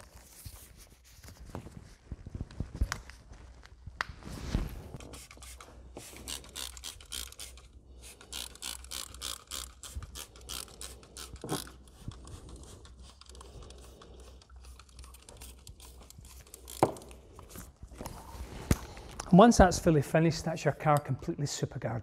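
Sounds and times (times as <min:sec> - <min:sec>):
aerosol spray hisses and clicks: 0:05.0 - 0:17.0.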